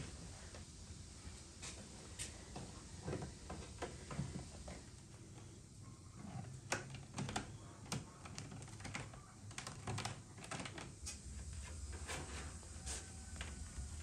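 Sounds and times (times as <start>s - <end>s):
wire mesh clicking and crinkling: 6.7s - 11.3s.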